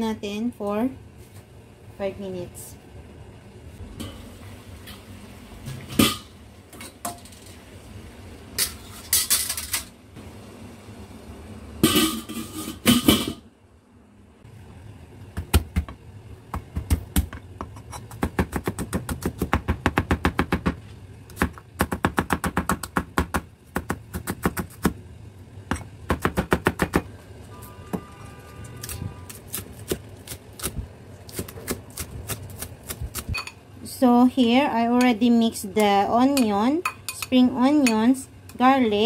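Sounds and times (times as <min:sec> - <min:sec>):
metal pot clanks: 0:05.6 - 0:07.6, 0:11.8 - 0:13.4.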